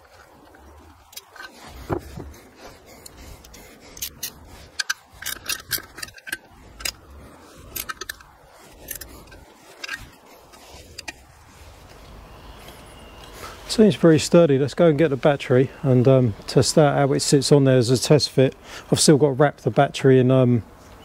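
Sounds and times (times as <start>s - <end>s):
hand tool clicking on bolt: 3.0s - 11.2s.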